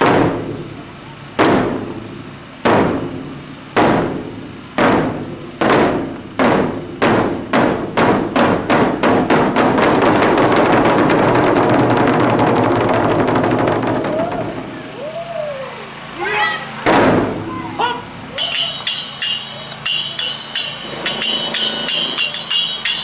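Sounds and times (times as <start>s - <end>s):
large drums beating: 1.4s - 14.8s, 16.9s - 17.5s.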